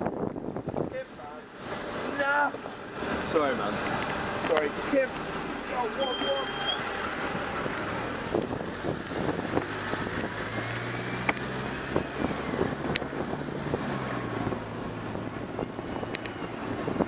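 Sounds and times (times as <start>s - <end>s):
wind on microphone: 0.0s - 1.0s, 7.2s - 17.0s
traffic: 0.0s - 17.0s
vehicle engine humming: 0.0s - 17.0s
sharp clicks: 11.2s - 11.5s.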